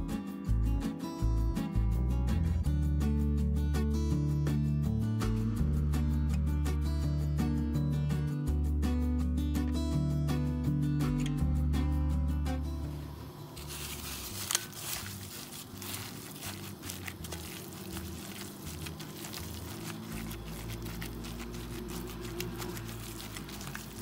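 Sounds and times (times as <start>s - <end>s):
meat squelching: 13.6s - 24.0s
plastic glove crinkling: 13.6s - 24.0s.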